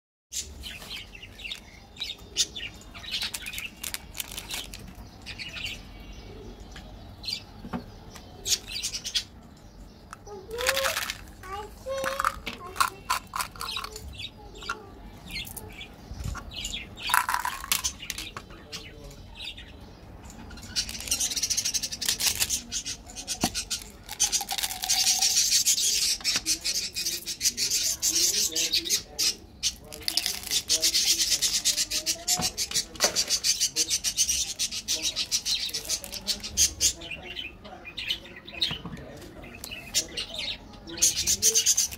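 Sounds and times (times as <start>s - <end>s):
small candies rattling: 3.0s - 5.0s, 10.1s - 15.6s, 17.0s - 18.3s, 20.8s - 22.6s, 23.5s - 25.6s, 29.9s - 31.0s
plastic caps clicking: 3.2s - 4.8s, 10.1s - 11.4s, 12.0s - 14.0s, 17.1s - 18.4s
foil wrapper crackling: 3.2s - 5.0s, 20.8s - 22.6s, 23.7s - 25.3s, 29.9s - 30.8s.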